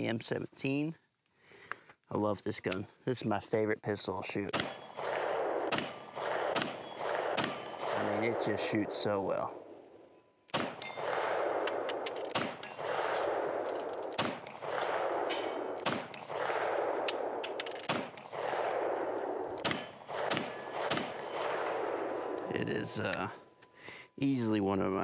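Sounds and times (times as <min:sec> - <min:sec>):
pistol shots: 0:04.5 - 0:09.5, 0:10.5 - 0:23.1.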